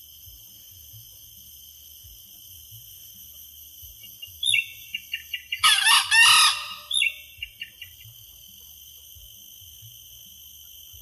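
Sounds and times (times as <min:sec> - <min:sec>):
rooster crowing: 0:05.6 - 0:07.1.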